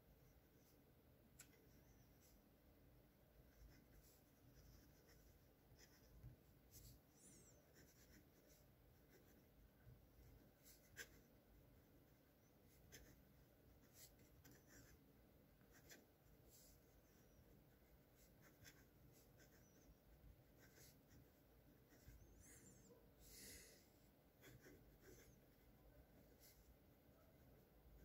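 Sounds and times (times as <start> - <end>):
fountain pen scratching on paper: 3.5 - 9.5, 10.2 - 11.3, 12.7 - 13.2, 13.8 - 15.0, 15.7 - 22.8, 24.4 - 25.5.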